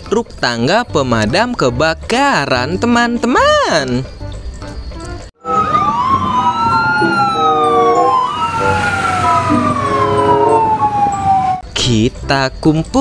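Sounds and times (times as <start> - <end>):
fire engine sirens wailing: 5.4 - 11.6.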